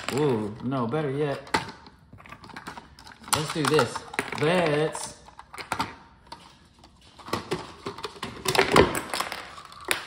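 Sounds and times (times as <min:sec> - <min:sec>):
plastic toy cars clicking: 0:02.4 - 0:06.0.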